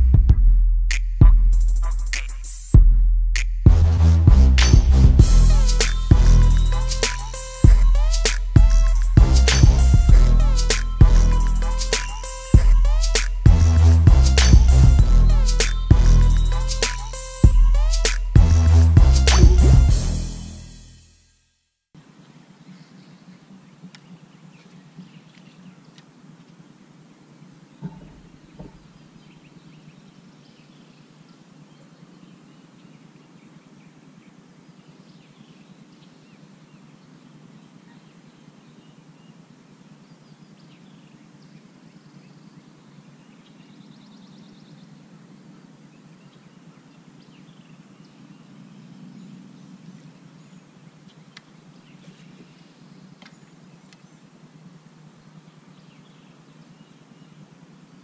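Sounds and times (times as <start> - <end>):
sharp ticks: 2.1 - 2.5
steady low hum: 2.8 - 21.0
bird trill: 5.2 - 20.3
birds chirping faintly: 5.4 - 18.8, 22.0 - 58.0.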